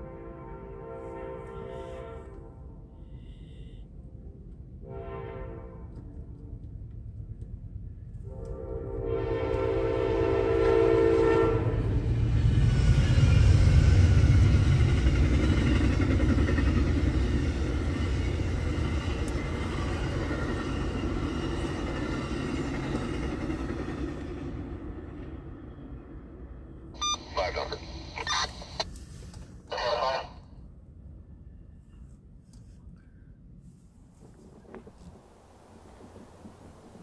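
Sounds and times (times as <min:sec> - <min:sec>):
train horn blast: 0:00.0 - 0:06.5, 0:08.2 - 0:12.1
rumble of train wheels: 0:00.0 - 0:29.7, 0:30.6 - 0:37.0.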